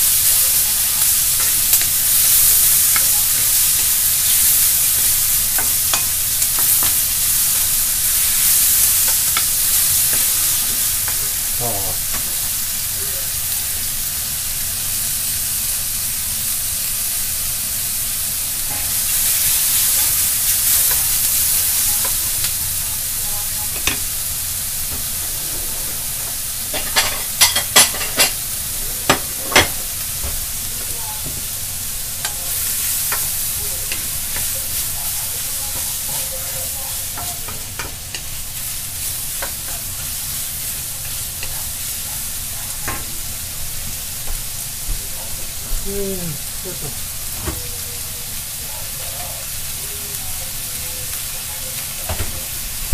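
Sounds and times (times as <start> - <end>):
vegetables sizzling in a wok: 0.0 - 52.9
wooden spatula scraping wok: 23.7 - 28.4.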